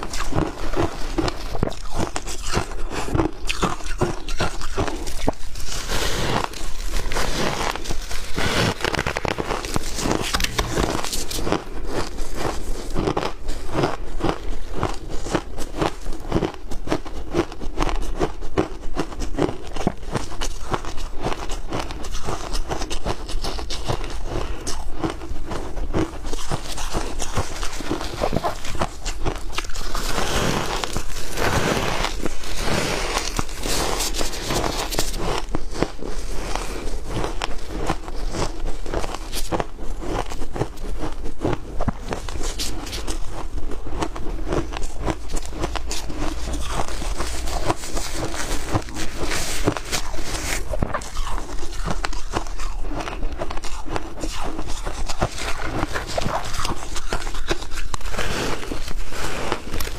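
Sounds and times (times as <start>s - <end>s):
ice being chewed: 0.0s - 59.9s.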